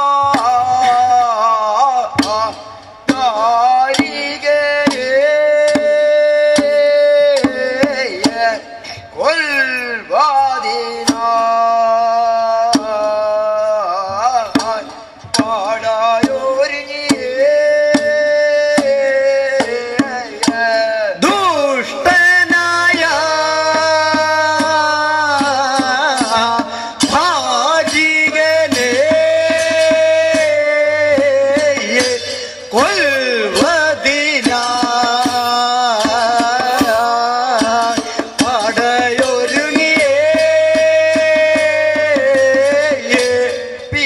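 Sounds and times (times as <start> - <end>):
drum strokes: 35.1 - 37.2.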